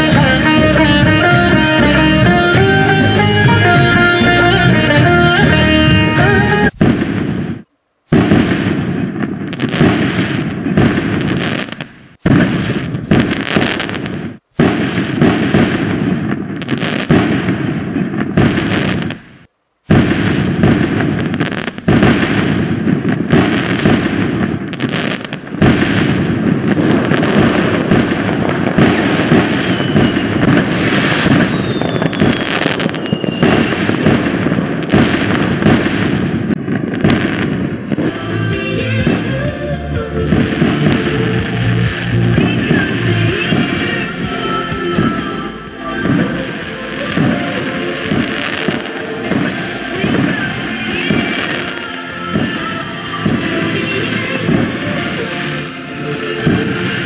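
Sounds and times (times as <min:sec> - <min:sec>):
fireworks crackling and popping: 0:00.0 - 0:57.0
falling whistles: 0:28.7 - 0:34.3.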